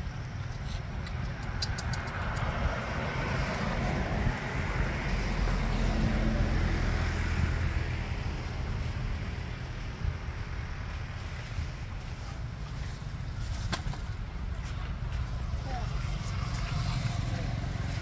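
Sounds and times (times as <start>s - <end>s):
low traffic rumble: 0.0s - 18.0s
truck driving past: 2.2s - 10.3s.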